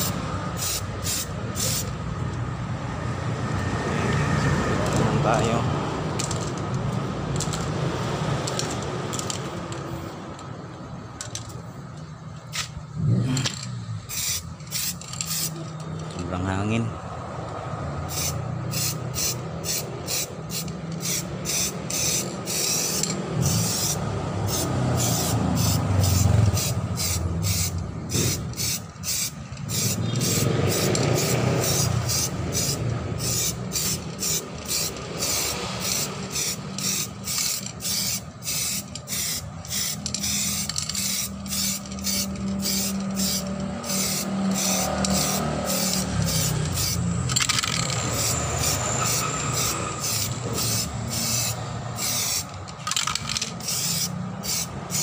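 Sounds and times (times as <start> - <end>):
aerosol spray hissing: 0.0 - 1.9, 18.1 - 47.0, 48.0 - 52.5, 53.6 - 55.0.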